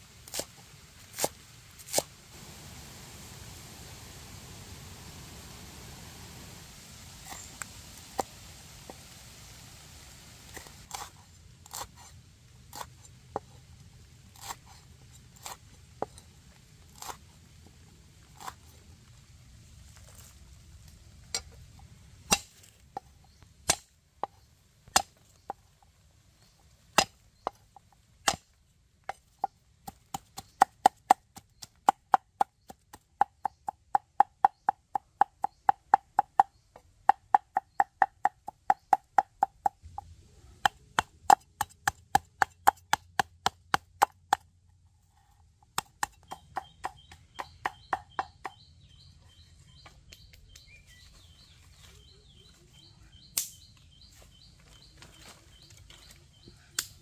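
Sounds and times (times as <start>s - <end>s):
knife chopping on wooden board: 29.1s - 44.4s, 45.8s - 48.6s.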